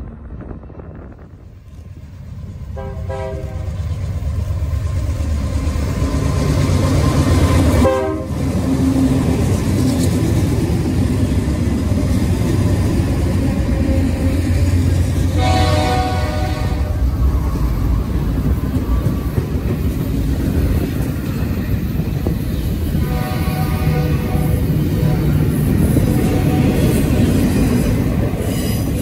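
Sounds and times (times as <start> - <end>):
diesel locomotives rumbling past: 0.0 - 29.0
multi-tone air horn: 2.8 - 3.7, 7.8 - 8.4, 15.3 - 17.0, 23.0 - 25.3.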